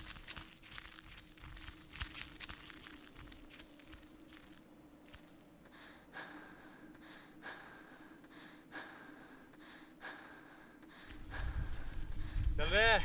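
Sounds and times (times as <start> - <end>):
low hum: 0.0 - 12.6
heavy breathing: 5.6 - 12.6.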